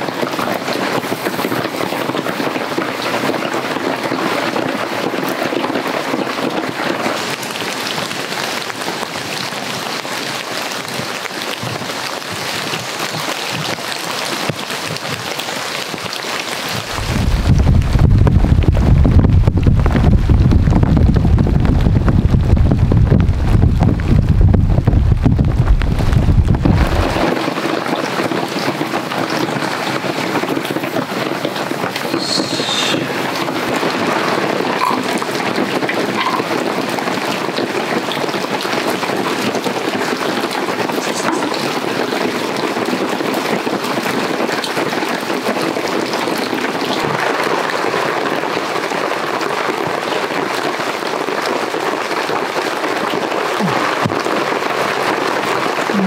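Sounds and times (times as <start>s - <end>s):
heavy rain falling: 0.0s - 56.0s
wind rumble on microphone: 16.6s - 48.7s.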